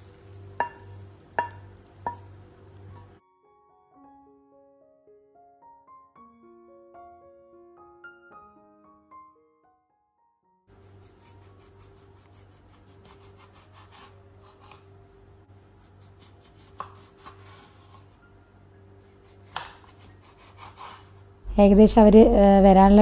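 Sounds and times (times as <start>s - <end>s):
knife tapping on board: 0.6s - 2.3s
knife scraping through oranges: 15.6s - 18.2s, 19.1s - 21.2s.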